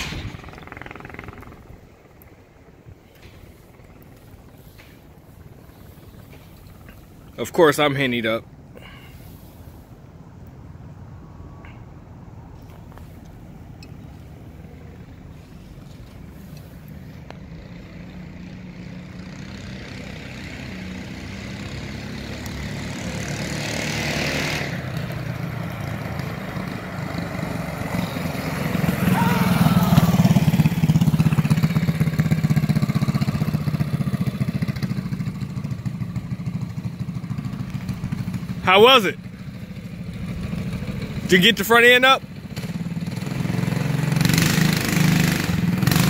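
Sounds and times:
mini bike engine passing: 0:00.0 - 0:08.2, 0:14.3 - 0:46.0.

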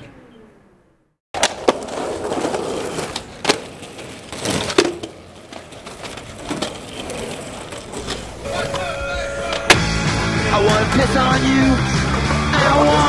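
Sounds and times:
skateboard clacking on ground: 0:01.4 - 0:09.9
skateboard wheels rolling on concrete: 0:01.4 - 0:13.0.

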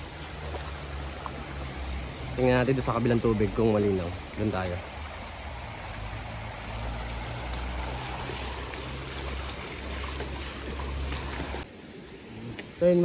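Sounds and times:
river rushing over rocks: 0:00.0 - 0:11.9.

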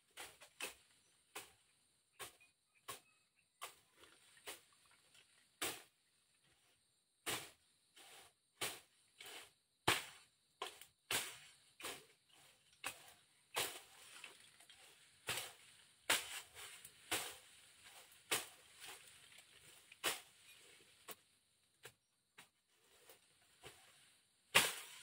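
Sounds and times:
machete chopping through brush: 0:00.1 - 0:01.6, 0:02.2 - 0:04.6, 0:05.6 - 0:05.9, 0:07.3 - 0:07.6, 0:08.6 - 0:21.2, 0:24.5 - 0:25.0.

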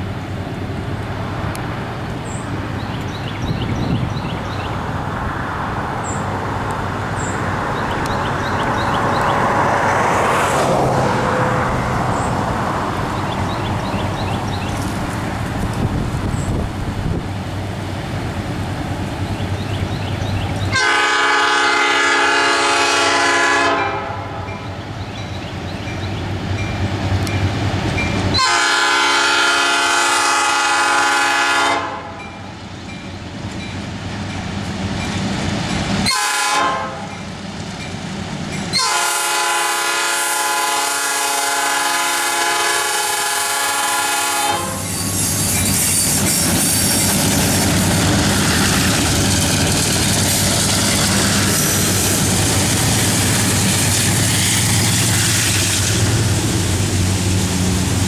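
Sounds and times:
train rumbling past: 0:00.0 - 0:58.0
locomotive air horn blasts: 0:20.7 - 0:24.6, 0:28.4 - 0:32.4, 0:36.0 - 0:37.2, 0:38.7 - 0:45.1.

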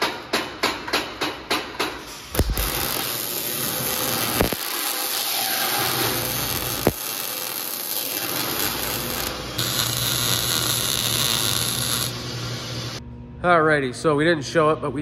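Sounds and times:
welding arc crackling: 0:02.1 - 0:13.0.

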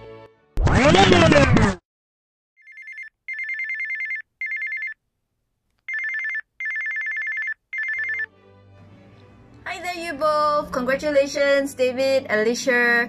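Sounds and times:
telephone ringing: 0:02.6 - 0:05.0, 0:05.9 - 0:08.3.

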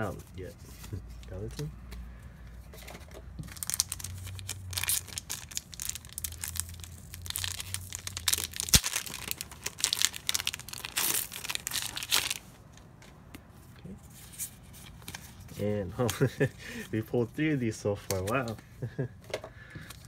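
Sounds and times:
wrappers crinkling and tearing: 0:03.4 - 0:12.5.

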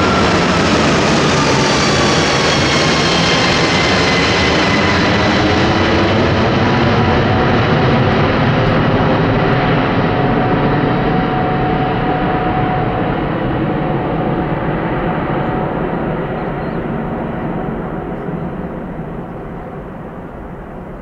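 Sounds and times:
jet plane rumble overhead: 0:00.0 - 0:21.0
whining tones sliding down: 0:08.5 - 0:19.2.

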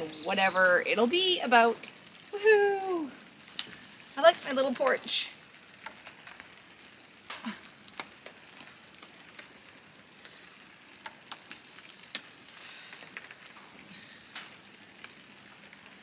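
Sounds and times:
light crackle: 0:00.0 - 0:16.0
faint scattered ticks: 0:03.4 - 0:16.0.

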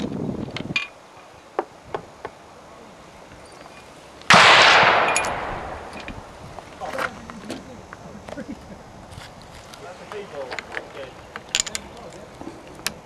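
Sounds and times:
rifle shot: 0:04.3 - 0:06.4.

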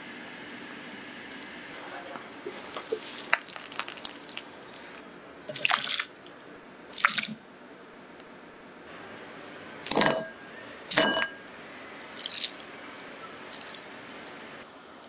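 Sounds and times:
water dripping: 0:02.7 - 0:07.4, 0:12.0 - 0:12.8, 0:13.5 - 0:14.3.

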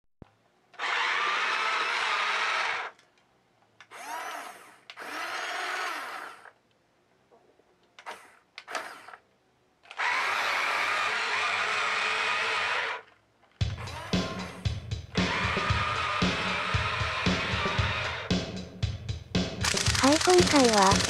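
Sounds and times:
toy motor and gears whirring: 0:00.8 - 0:03.0, 0:03.8 - 0:06.6, 0:08.0 - 0:09.2, 0:09.9 - 0:13.2, 0:19.6 - 0:21.0.

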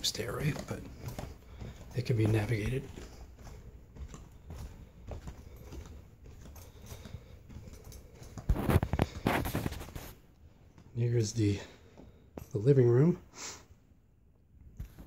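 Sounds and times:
rustling: 0:00.0 - 0:11.0
footsteps on carpeted stairs: 0:00.0 - 0:12.9.

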